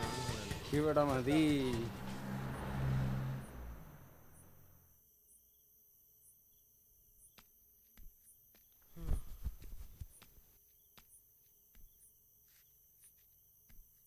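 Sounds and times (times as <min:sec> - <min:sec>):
insects chirring: 0:01.4 - 0:14.0
low rumble: 0:01.7 - 0:04.8.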